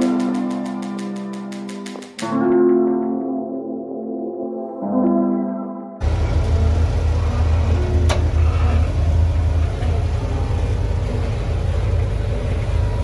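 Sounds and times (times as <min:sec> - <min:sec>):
buggy engine running: 0:06.0 - 0:13.0.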